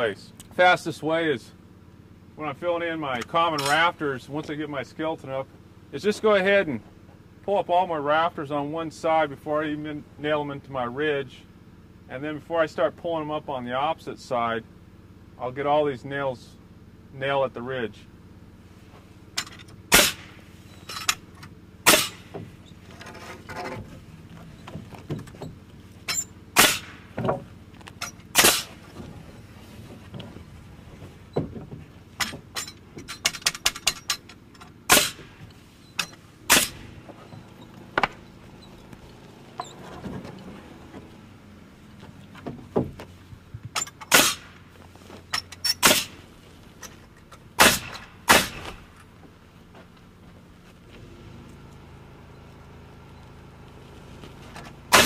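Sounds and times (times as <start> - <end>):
nail gun firing into wood: 19.9 - 20.4, 21.8 - 22.4, 26.6 - 27.3, 28.3 - 28.8, 34.9 - 35.4, 36.5 - 37.0, 43.8 - 44.6, 45.8 - 46.2, 47.6 - 48.9.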